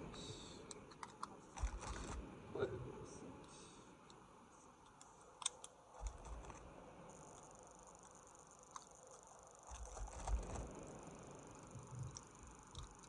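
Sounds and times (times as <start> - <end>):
faint clicks: 11.7 - 13.0.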